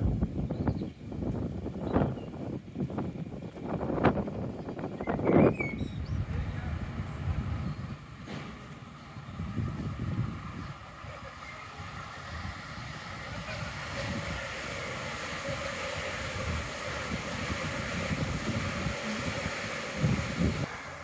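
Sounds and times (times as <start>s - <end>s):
wind buffeting microphone: 0.0s - 20.7s
train rolling rush: 0.0s - 21.0s
faint steady whine: 5.4s - 21.0s.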